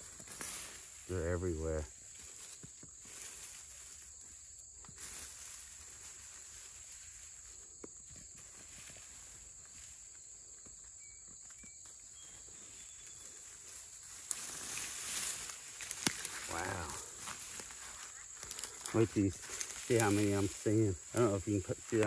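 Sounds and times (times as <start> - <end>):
high insect drone: 0.0 - 22.0
hands digging in soil: 13.7 - 22.0
dirt scattering: 14.0 - 22.0.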